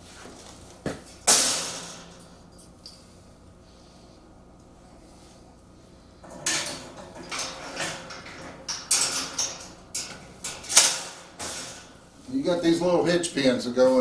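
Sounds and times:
metal mesh gate clanking: 0:01.3 - 0:02.7, 0:06.2 - 0:12.0.

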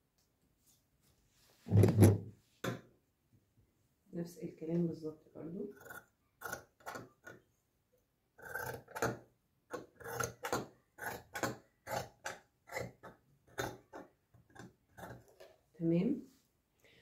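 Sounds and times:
scissors cutting fabric: 0:05.7 - 0:07.4, 0:08.4 - 0:15.2.

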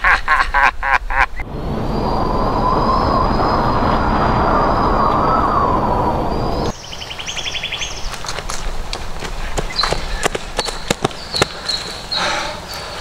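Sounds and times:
thin high whine: 0:01.4 - 0:06.8
rushing rumbling drone: 0:01.4 - 0:07.0.

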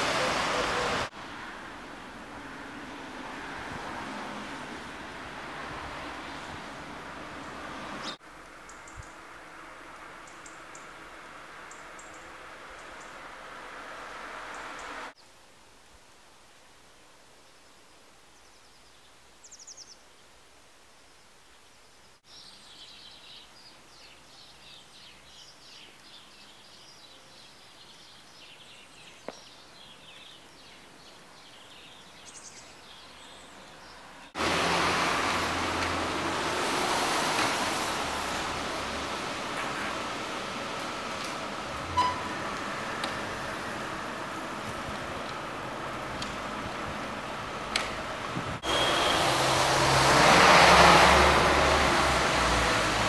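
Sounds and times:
small birds chirping: 0:07.4 - 0:09.2, 0:11.6 - 0:13.2, 0:17.5 - 0:20.3, 0:21.2 - 0:34.4.

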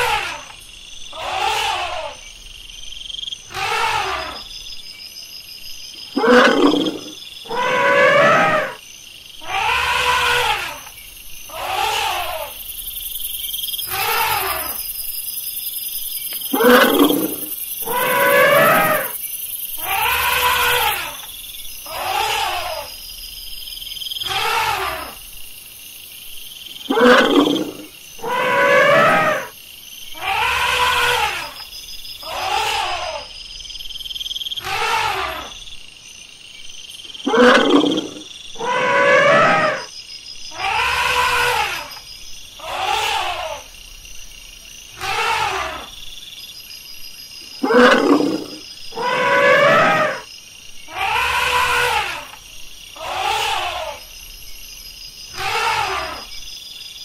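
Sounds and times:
elephants trumpeting: 0:01.2 - 0:02.2, 0:03.5 - 0:04.4, 0:06.2 - 0:08.8, 0:09.4 - 0:10.8, 0:16.5 - 0:19.1, 0:24.3 - 0:25.2, 0:26.9 - 0:29.5, 0:34.6 - 0:35.5, 0:37.3 - 0:39.9, 0:42.6 - 0:43.6, 0:45.0 - 0:45.9, 0:47.6 - 0:50.2, 0:50.9 - 0:52.3, 0:55.4 - 0:56.2.

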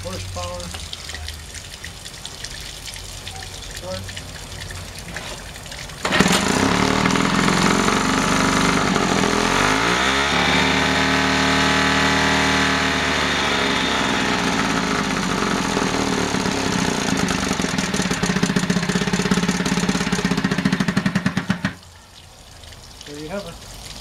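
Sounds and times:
outboard motor starting and running: 0:05.4 - 0:21.8.

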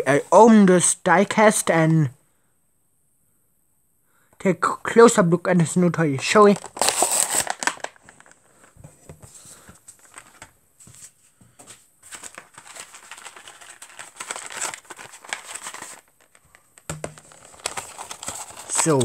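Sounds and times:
plastic packaging crinkling: 0:06.4 - 0:08.8, 0:09.5 - 0:10.6, 0:12.0 - 0:19.0.

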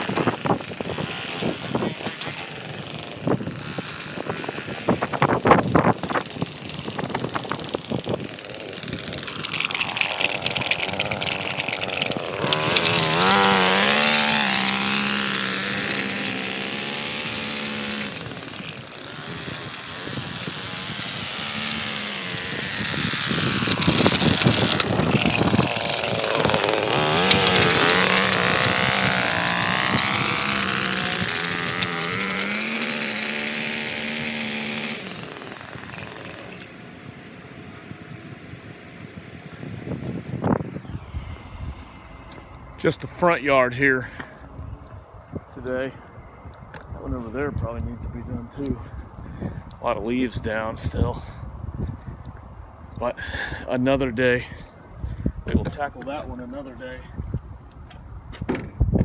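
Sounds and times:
blade scraping concrete: 0:00.0 - 0:38.0
edger engine running: 0:00.0 - 0:49.2.

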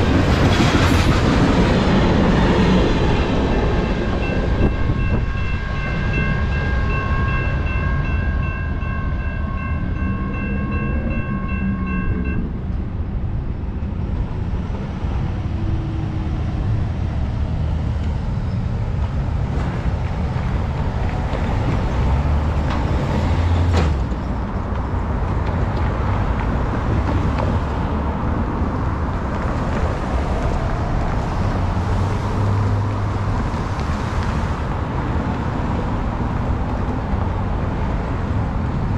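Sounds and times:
cars driving across tracks: 0:00.0 - 0:38.9
freight train rumble: 0:00.0 - 0:38.9
crossing warning bell ringing: 0:03.0 - 0:12.8.

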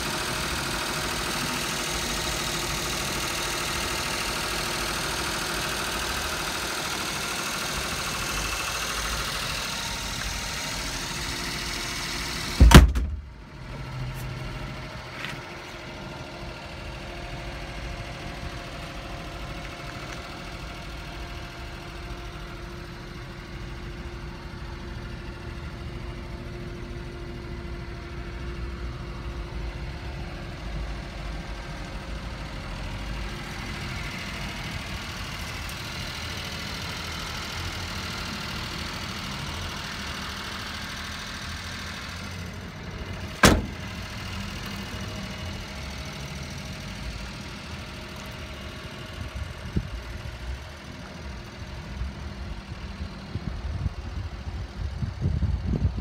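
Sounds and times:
truck engine idling: 0:00.0 - 0:56.0
cab door clunk: 0:12.6 - 0:13.3, 0:43.3 - 0:44.0.

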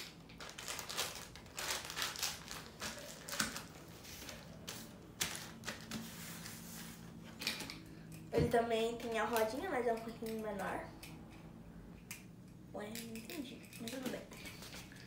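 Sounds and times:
plastic wrapper crinkling: 0:00.0 - 0:06.0.

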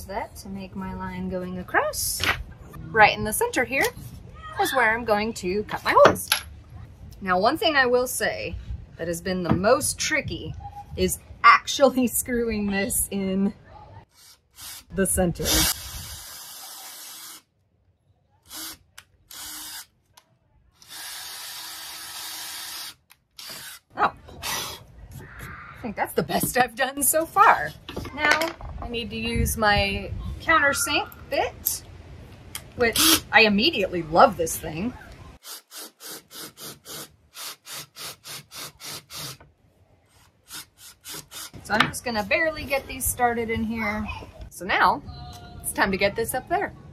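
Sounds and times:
cordless drill boring into wood: 0:15.6 - 0:17.4, 0:18.5 - 0:19.9, 0:20.8 - 0:23.8.

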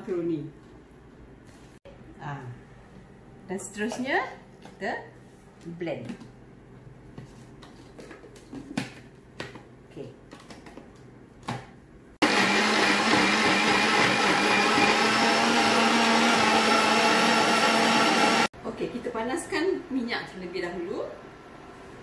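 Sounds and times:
blender whirring: 0:12.2 - 0:18.5.

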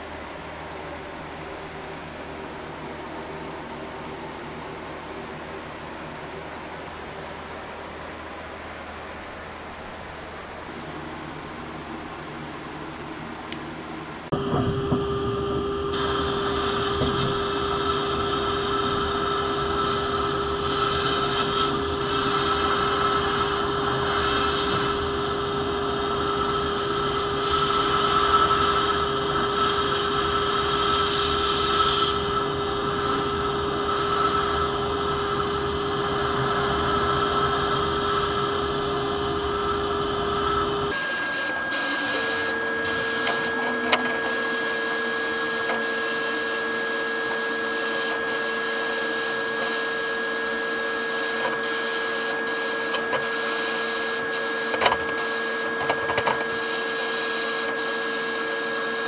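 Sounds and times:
steady hum: 0:00.0 - 0:59.0
sandblast gun hissing: 0:15.9 - 0:58.8.

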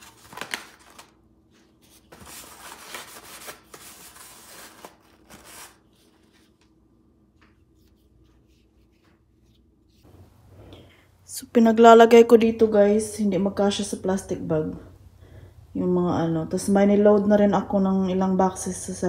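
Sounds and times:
food packaging crinkling: 0:00.0 - 0:06.8.

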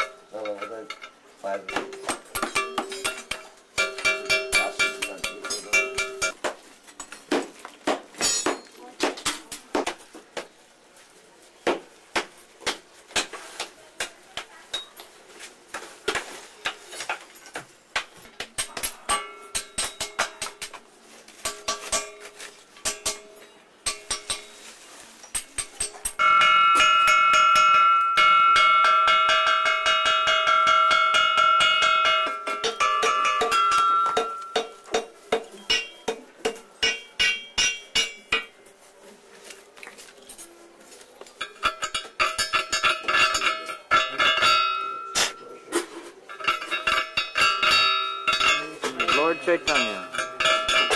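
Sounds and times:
hammer tapping metal: 0:00.0 - 0:06.4, 0:16.1 - 0:24.7, 0:25.3 - 0:38.6, 0:41.4 - 0:50.9
metal ringing: 0:00.0 - 0:06.4, 0:08.2 - 0:08.7, 0:18.6 - 0:20.8, 0:21.4 - 0:38.6, 0:41.4 - 0:50.9.

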